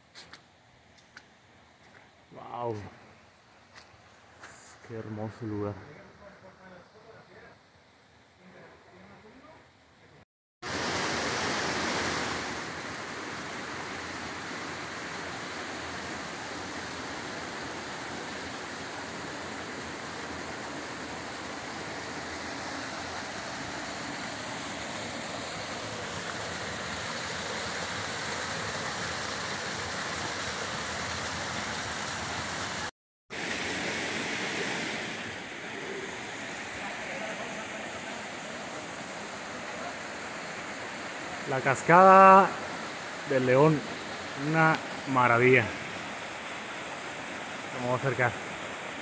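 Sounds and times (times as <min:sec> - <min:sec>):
creek and waterfall rushing: 0:10.6 - 0:49.0.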